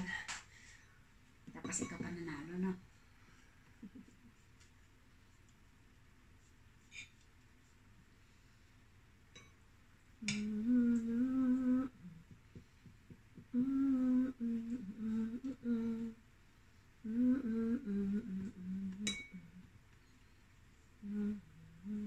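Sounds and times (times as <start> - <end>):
woman humming: 10.2 - 12.4, 13.4 - 16.2, 17.0 - 19.7, 21.0 - 22.0.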